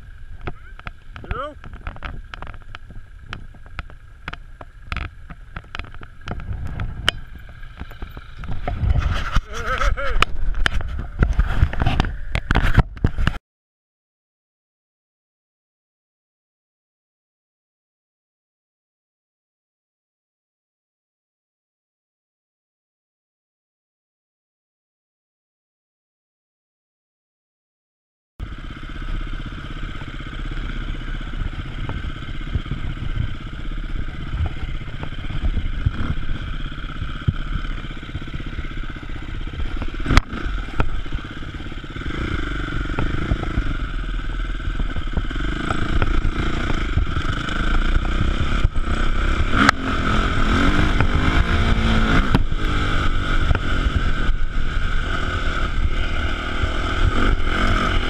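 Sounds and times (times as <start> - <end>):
motorcycle engine running: 0.0 - 13.4, 28.4 - 58.0.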